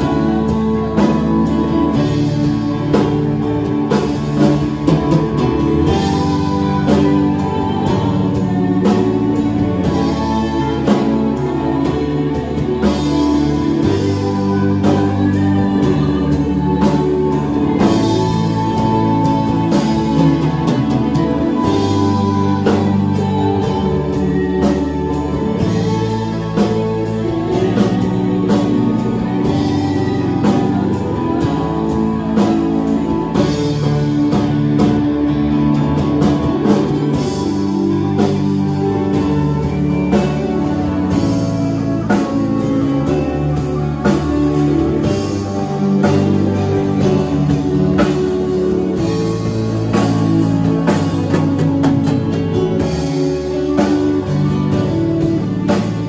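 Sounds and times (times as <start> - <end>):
drum kit steady beat: 0.0 - 56.0
worship band playing slow song: 0.0 - 56.0
woman singing into microphone: 5.9 - 34.5.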